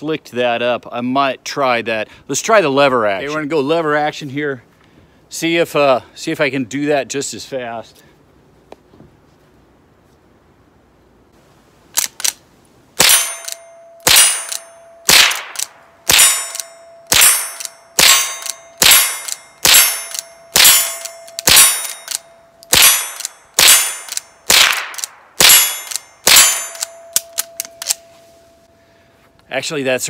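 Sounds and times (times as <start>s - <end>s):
rifle shots: 13.0s - 28.0s
steel target ringing: 13.0s - 28.8s.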